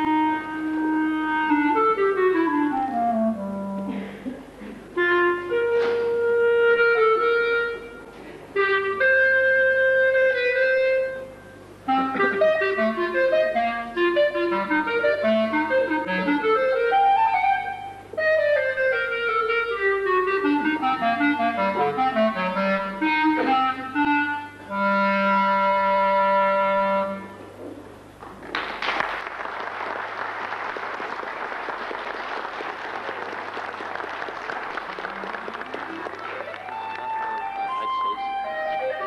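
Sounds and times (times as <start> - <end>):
solo clarinet playing: 0.0 - 4.1, 4.9 - 27.5, 36.3 - 39.0
audience applauding: 28.2 - 38.4.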